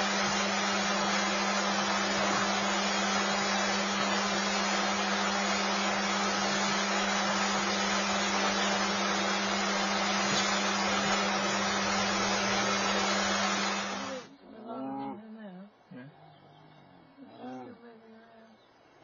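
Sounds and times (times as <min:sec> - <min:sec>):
steady hiss: 0:00.0 - 0:14.4.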